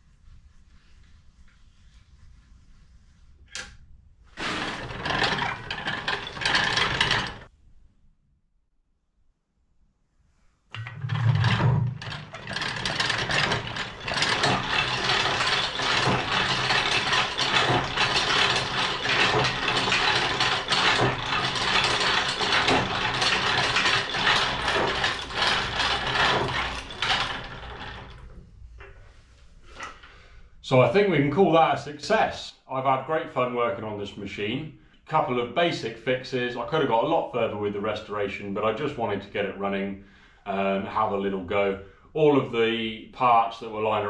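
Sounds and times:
hand-cranked metal shaper clattering: 4.4s - 7.5s, 10.8s - 28.4s.

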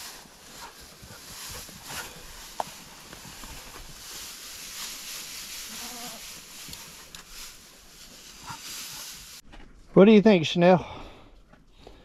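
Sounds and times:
steady rustling: 0.0s - 10.0s
goat bleating: 5.7s - 6.3s.

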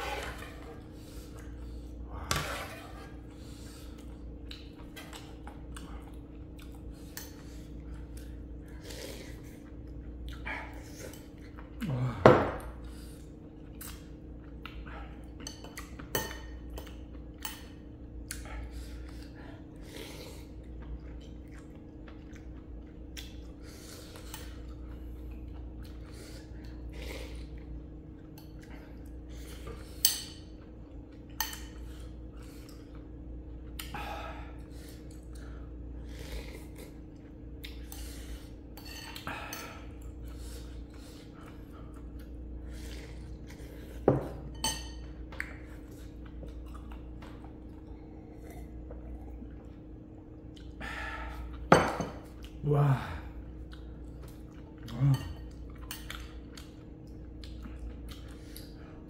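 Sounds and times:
faint steady hum: 0.0s - 59.0s
utensils clinking against bowl: 38.8s - 40.0s, 44.0s - 45.2s.

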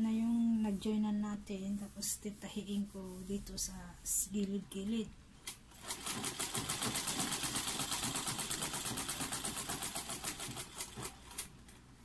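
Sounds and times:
sewing machine clatter: 5.7s - 11.6s.

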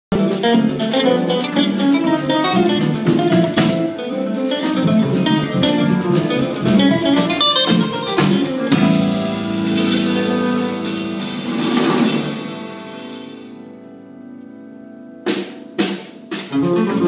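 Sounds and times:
fast plucked string music: 0.1s - 12.8s, 16.3s - 17.0s.

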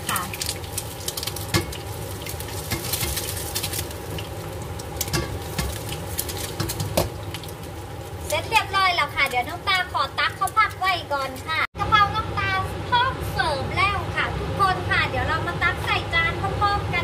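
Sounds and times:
stir-fry sizzling in a pan: 0.0s - 11.7s.

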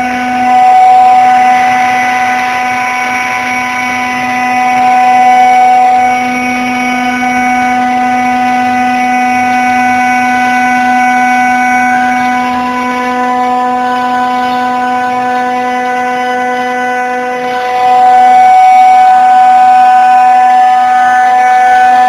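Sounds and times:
router spindle whine: 0.0s - 22.0s.

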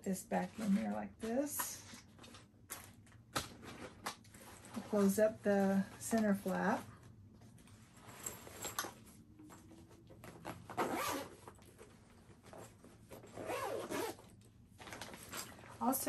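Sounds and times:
zipper being pulled closed: 10.2s - 11.6s, 12.5s - 14.3s.

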